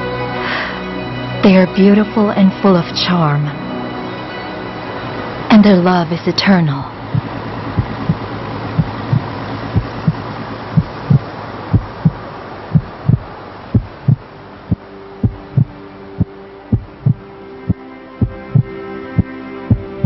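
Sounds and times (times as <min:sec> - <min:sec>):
held synthesizer chord: 0:00.0 - 0:20.0
steady hiss: 0:07.0 - 0:20.0
heartbeat double thump: 0:07.1 - 0:12.2, 0:12.8 - 0:17.2, 0:18.2 - 0:18.7.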